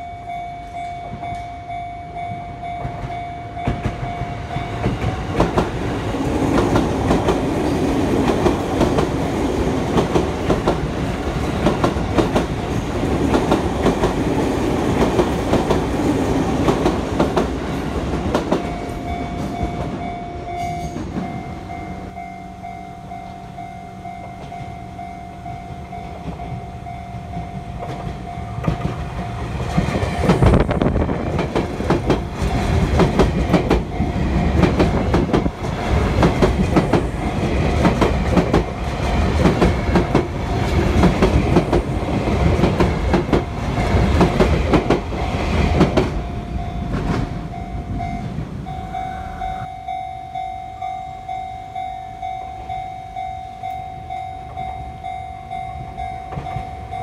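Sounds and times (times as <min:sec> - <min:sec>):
level-crossing warning bell: 0:00.0 - 0:57.0
train wheels clacking: 0:02.8 - 0:21.5, 0:27.3 - 0:49.7.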